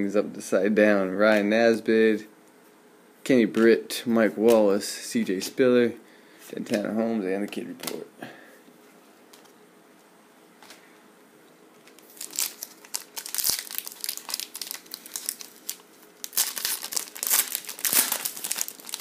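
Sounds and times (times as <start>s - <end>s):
foil wrapper tearing and crinkling: 11.9s - 19.0s.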